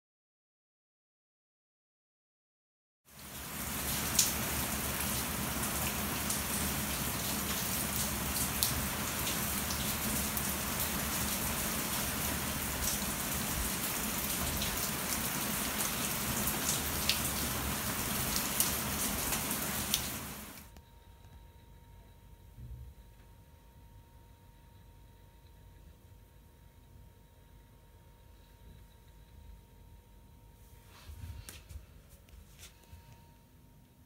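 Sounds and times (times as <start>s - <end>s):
heavy rain splashing into water: 3.1s - 20.6s.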